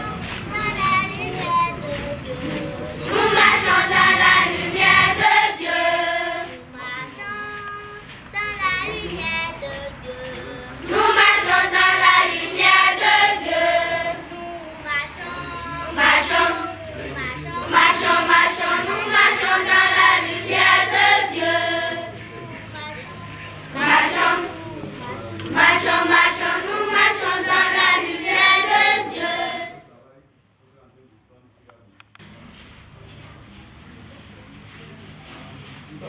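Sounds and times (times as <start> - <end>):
children singing in chorus: 0.0 - 22.2, 23.3 - 29.8.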